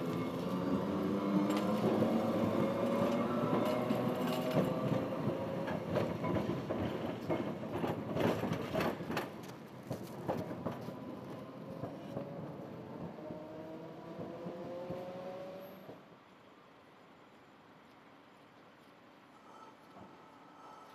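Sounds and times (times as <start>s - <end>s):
tram motor whine: 0.0s - 6.2s
wheels clacking on track: 0.0s - 16.0s.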